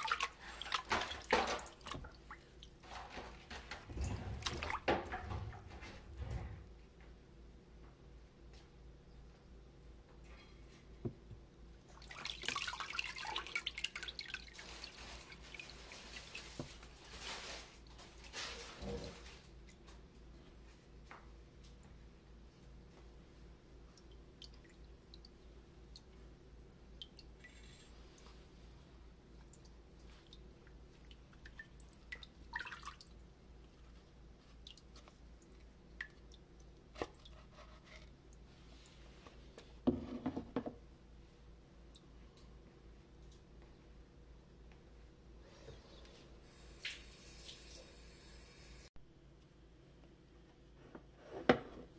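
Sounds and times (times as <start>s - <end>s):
water dripping into a vat: 0.0s - 6.0s, 11.1s - 16.8s, 23.7s - 38.5s, 41.6s - 42.5s.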